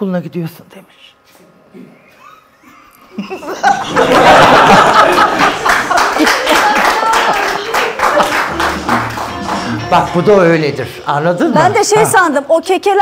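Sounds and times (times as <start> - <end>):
people laughing hard: 2.1 - 9.2
hand claps: 5.1 - 9.7.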